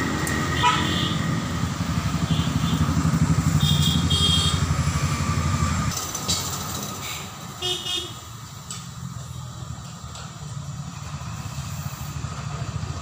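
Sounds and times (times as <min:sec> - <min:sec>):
engine running: 0:00.0 - 0:07.5, 0:08.4 - 0:13.0.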